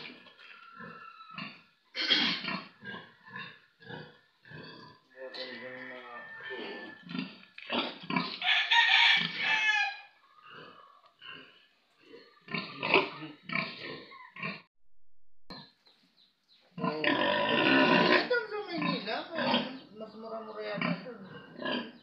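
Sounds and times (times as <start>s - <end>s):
pigs grunting: 0.0s - 8.4s, 10.4s - 14.7s, 16.8s - 19.9s, 20.8s - 22.0s.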